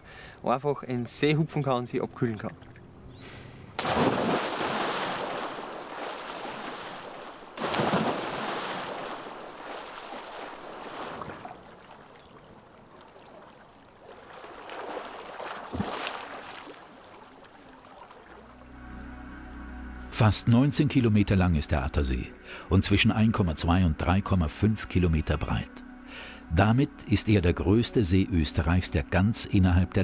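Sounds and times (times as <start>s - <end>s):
water churning: 3.7s - 18.6s
loud splash into water: 3.8s - 11.6s, 14.4s - 16.8s
swimming splashes: 3.8s - 18.6s.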